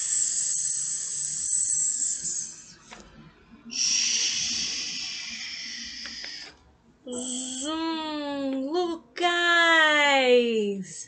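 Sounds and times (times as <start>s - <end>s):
person making whoosh with mouth: 0.0s - 2.8s, 3.7s - 7.7s.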